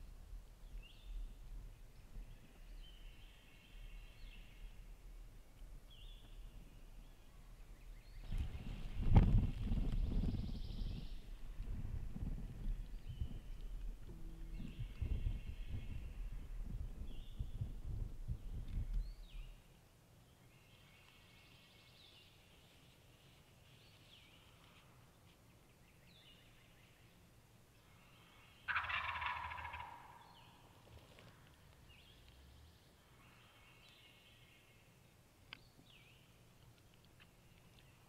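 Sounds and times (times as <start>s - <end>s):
songbirds chirping: 0.0s - 38.0s
turkey gobbling: 28.7s - 30.2s.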